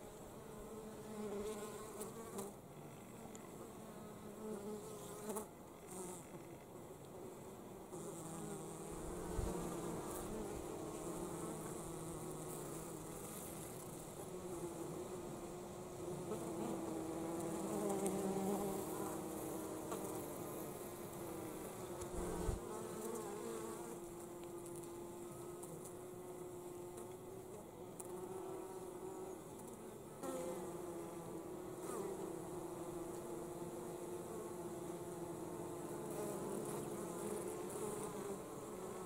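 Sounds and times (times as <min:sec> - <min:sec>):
low hum of bees flying close: 0:00.0 - 0:39.0
bees buzzing: 0:07.9 - 0:39.0.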